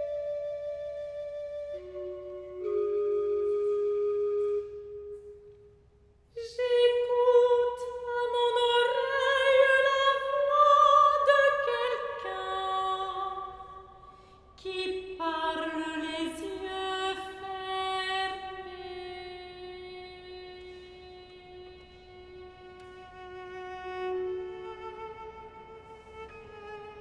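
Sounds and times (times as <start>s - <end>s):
organ notes: 0.0s - 5.3s
soprano singing: 6.4s - 13.9s, 14.6s - 25.6s.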